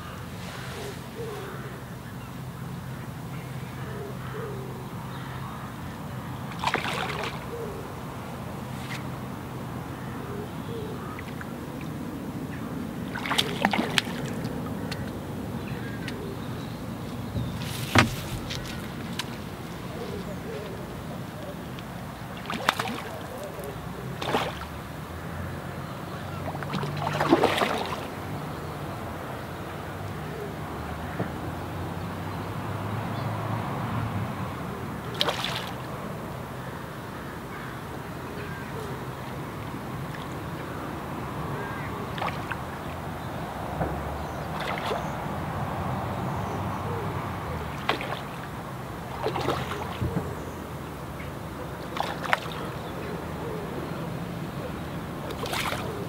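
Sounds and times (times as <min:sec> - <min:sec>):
wind and water rumble: 0:00.0 - 0:56.0
fish splashing at surface: 0:06.6 - 0:07.4, 0:13.2 - 0:14.3, 0:17.4 - 0:19.9, 0:22.4 - 0:23.5, 0:26.6 - 0:28.1, 0:35.1 - 0:35.8, 0:49.2 - 0:50.0, 0:51.9 - 0:52.7, 0:55.2 - 0:56.0.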